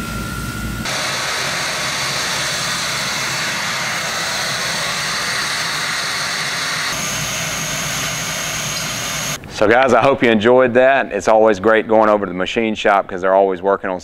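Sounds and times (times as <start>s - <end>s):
low shop hum: 0.0s - 10.2s
steam hissing from valve: 0.9s - 9.4s.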